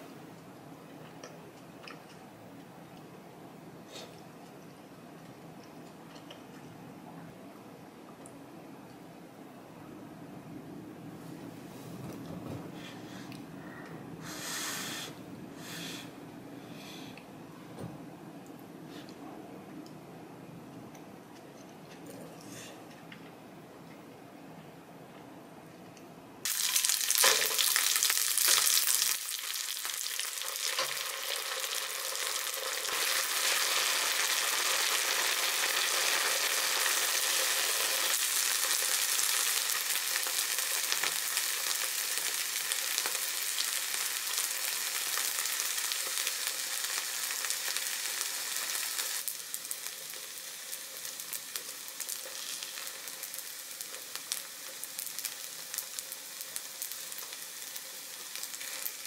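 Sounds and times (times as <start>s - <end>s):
rice sizzling on a hot plate: 26.4s - 59.0s.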